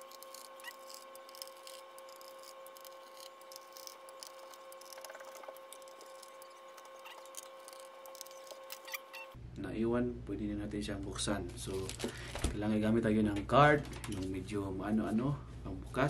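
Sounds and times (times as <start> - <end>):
screwdriver clicks and scrapes: 0.0 - 9.3.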